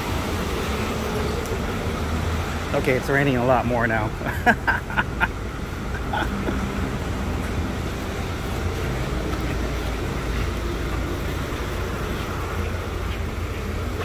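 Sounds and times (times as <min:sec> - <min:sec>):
heavy rain falling: 0:00.0 - 0:14.0.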